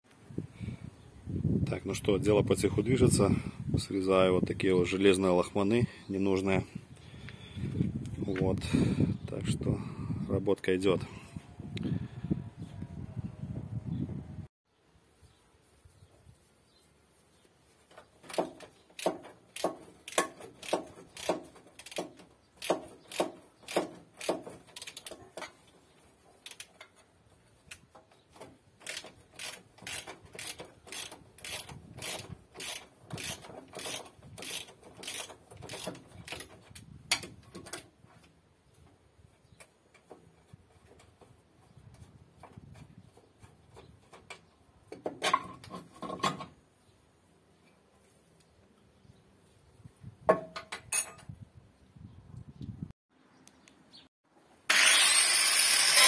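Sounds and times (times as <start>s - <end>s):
ratchet wrench clicking: 19.0s - 25.1s, 26.4s - 26.8s, 28.8s - 36.5s.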